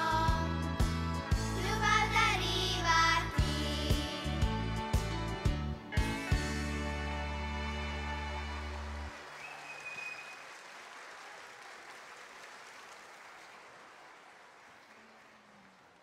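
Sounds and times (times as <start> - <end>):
sung music: 0.0 - 9.2
audience applauding: 7.2 - 16.0.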